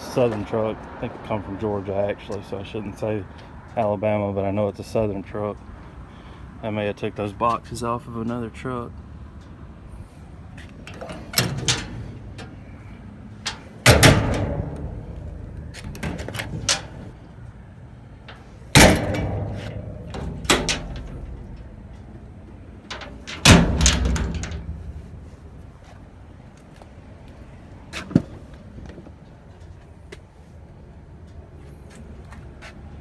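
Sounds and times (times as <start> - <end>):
metal doors banging shut: 10.8 - 12.7, 13.4 - 17.2, 18.3 - 22.0, 22.8 - 25.2
latch clicks: 18.3 - 21.7.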